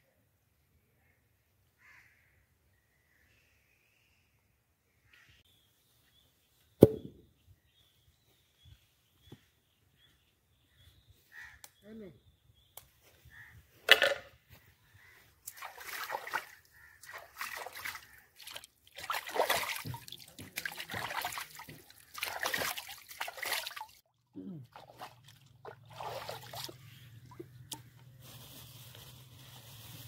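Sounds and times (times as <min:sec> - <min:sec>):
water splashing and trickling: 0:15.4 - 0:30.0.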